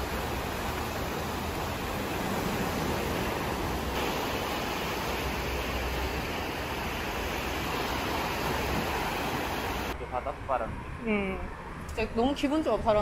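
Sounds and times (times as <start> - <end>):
small waves breaking on beach: 0.0 - 10.0.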